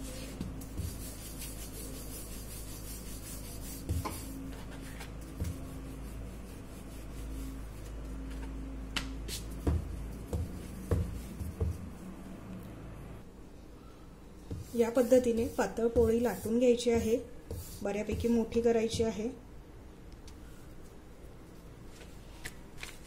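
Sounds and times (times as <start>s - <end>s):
rolling pin rubbing on dough: 0.0s - 8.4s, 9.3s - 12.2s, 14.4s - 19.0s.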